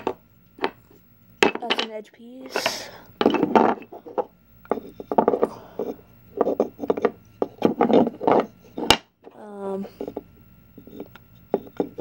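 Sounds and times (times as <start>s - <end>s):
wooden puzzle pieces clacking: 0.0s - 1.9s, 2.5s - 9.1s.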